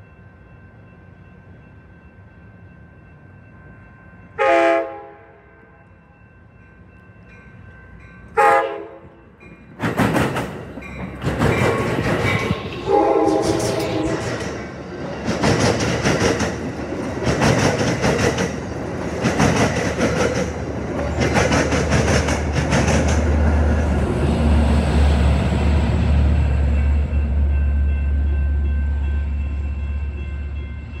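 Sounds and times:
diesel locomotive engine drone: 0.0 - 31.0
train wheels clattering over joints: 9.8 - 23.4.

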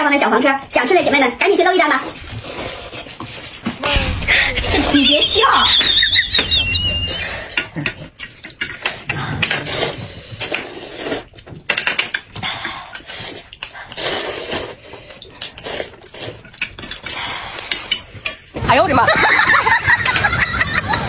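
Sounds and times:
noodles being slurped: 9.6 - 11.5, 12.8 - 18.2.

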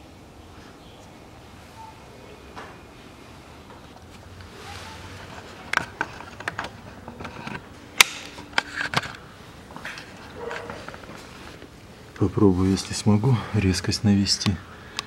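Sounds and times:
rustling: 3.0 - 13.1.

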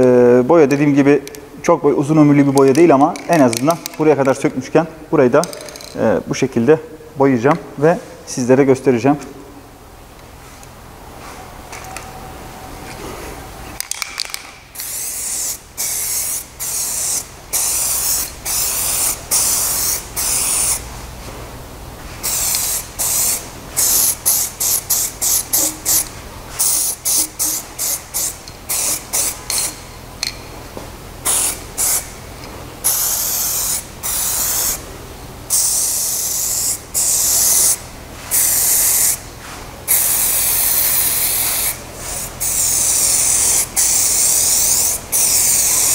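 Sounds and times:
aerosol spray can hissing: 14.8 - 20.8, 22.2 - 29.8, 31.3 - 32.1, 32.8 - 34.8, 35.5 - 39.2, 39.9 - 45.9.

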